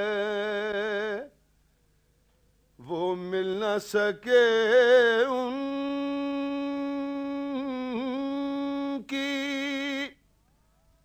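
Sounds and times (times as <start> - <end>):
man singing a long note: 0.0 - 1.3, 2.8 - 10.2.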